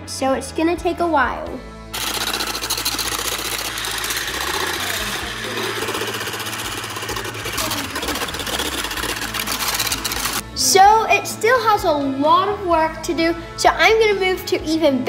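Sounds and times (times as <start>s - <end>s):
electric whisk motor whirring: 1.9s - 10.4s
whisk wires rattling against bowl: 2.0s - 10.4s.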